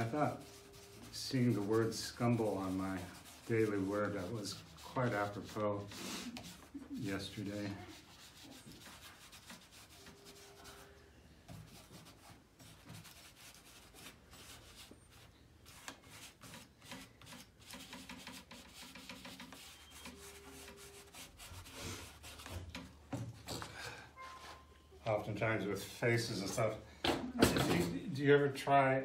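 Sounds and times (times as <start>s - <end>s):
fingers rubbing pastel on paper: 0.4s - 10.8s.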